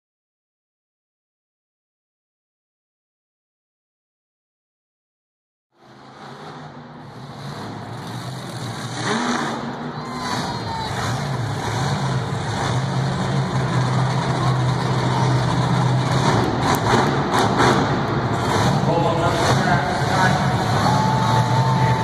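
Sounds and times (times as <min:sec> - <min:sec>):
monster truck engine running: 0:05.8 - 0:22.0.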